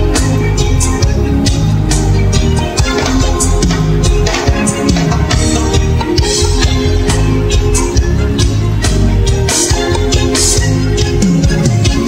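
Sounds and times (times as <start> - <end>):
reggae band with orchestra: 0.0 - 12.0.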